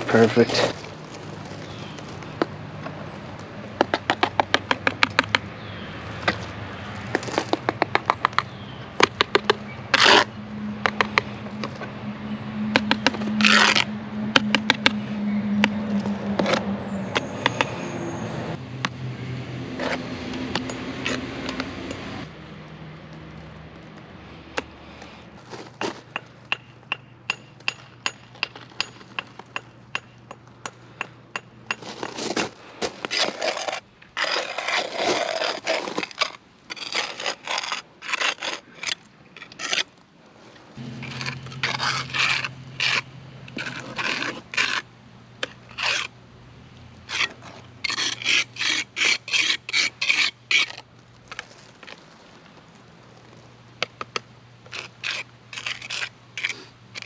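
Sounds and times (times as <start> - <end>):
trowel scraping mortar: 9.3 - 10.4, 12.8 - 14.9, 19.8 - 22.0, 31.7 - 39.9, 40.8 - 46.1, 47.0 - 52.0, 54.6 - 57.0.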